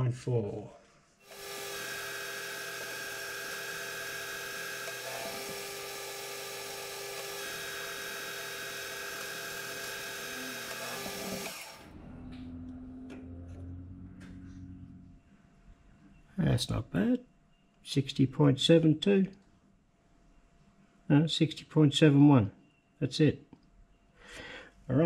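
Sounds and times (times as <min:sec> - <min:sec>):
lathe motor hum: 0:01.2 - 0:12.0
metal lathe cutting: 0:01.3 - 0:11.9.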